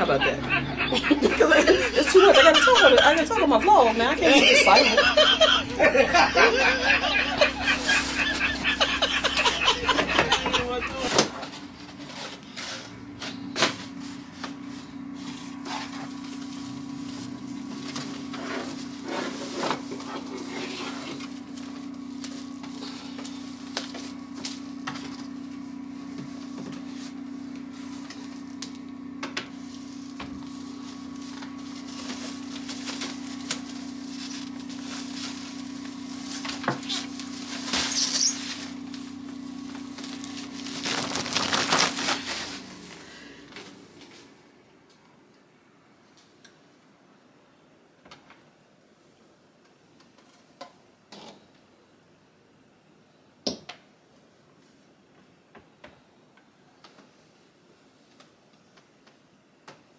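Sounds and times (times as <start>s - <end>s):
steady low hum: 0.0s - 46.0s
cardboard packaging rustling: 13.6s - 25.5s, 29.5s - 43.1s
crinkling rustle: 21.1s - 25.3s, 29.6s - 42.8s.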